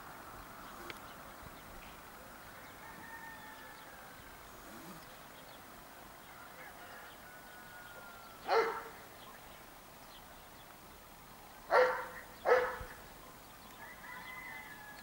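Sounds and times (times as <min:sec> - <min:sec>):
dog barking: 0:08.5 - 0:09.0, 0:11.7 - 0:13.0.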